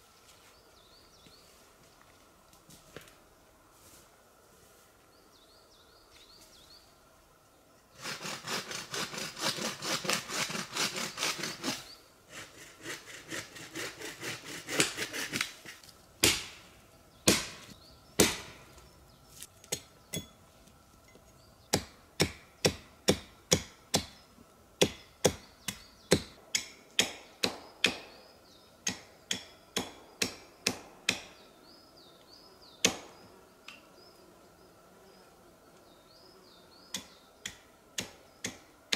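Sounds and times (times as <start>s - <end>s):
axe striking wood: 16.2s - 16.6s, 17.3s - 18.6s, 24.8s - 28.1s, 28.9s - 31.3s, 32.8s - 33.1s.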